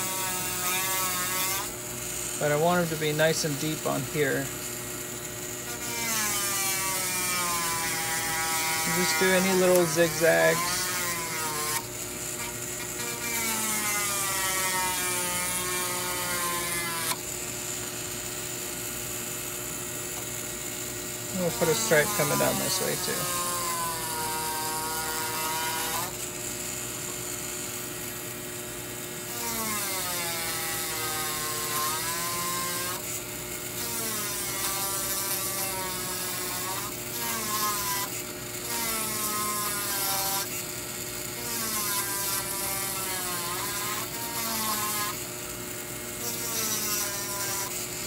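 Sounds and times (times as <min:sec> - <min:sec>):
micromotor drill whining: 0:00.0 - 0:17.4, 0:20.0 - 0:48.0
bur grinding metal: 0:05.2 - 0:17.3, 0:21.2 - 0:26.2.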